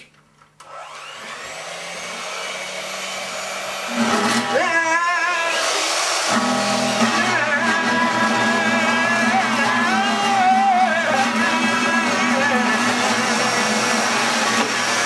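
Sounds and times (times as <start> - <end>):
electric hand mixer whirring: 0.6 - 15.0.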